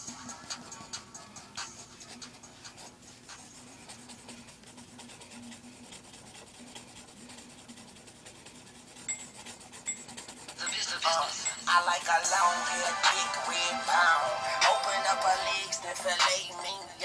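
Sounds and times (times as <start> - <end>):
pencil scratching on paper: 0.4 - 16.7.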